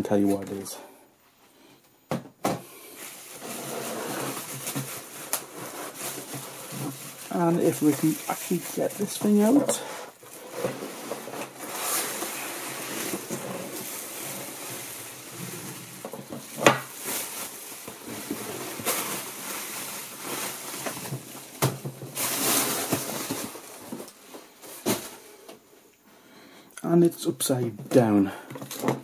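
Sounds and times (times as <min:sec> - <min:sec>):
bubble wrap crinkling: 0:02.8 - 0:25.2
cardboard box scraping: 0:03.2 - 0:07.8, 0:09.2 - 0:16.6.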